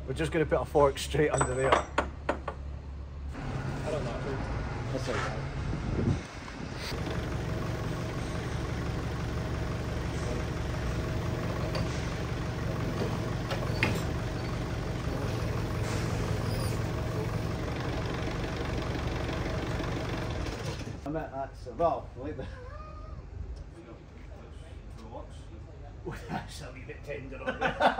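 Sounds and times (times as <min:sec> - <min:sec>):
forklift engine idling: 0:06.9 - 0:21.1.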